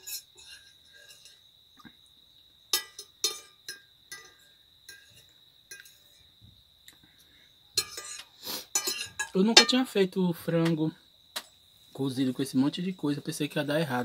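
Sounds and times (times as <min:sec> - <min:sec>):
fork clinking on a plate: 0:02.7 - 0:06.2, 0:07.8 - 0:09.8.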